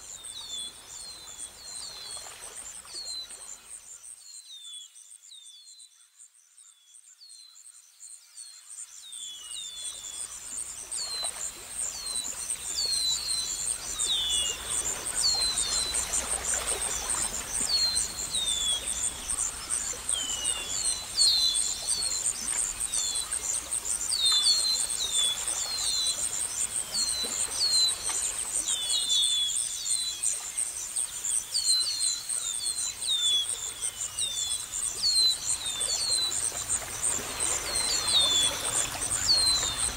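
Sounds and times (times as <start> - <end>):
insects trilling: 9.9 - 39.9.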